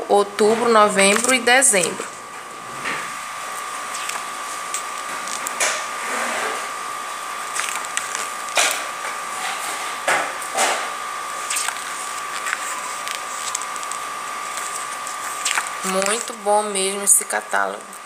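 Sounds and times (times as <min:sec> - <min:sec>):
steady high-pitched hum: 0:00.0 - 0:18.0
magazine pages rustling: 0:11.4 - 0:16.4.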